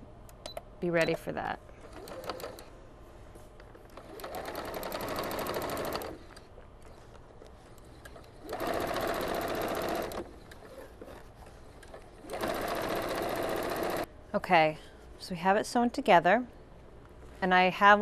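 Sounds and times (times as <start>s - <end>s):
electric sewing machine stitching: 1.8s - 2.7s, 3.9s - 6.4s, 8.1s - 11.2s, 12.2s - 14.1s.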